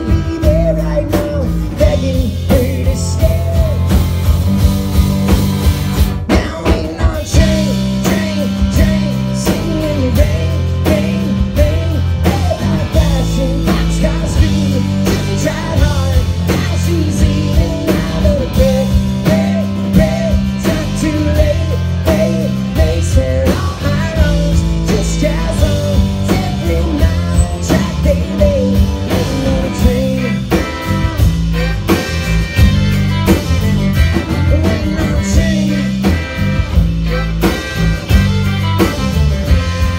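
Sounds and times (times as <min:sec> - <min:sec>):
live country rock band: 0:00.0 - 0:39.9
fiddle melody: 0:29.2 - 0:39.9.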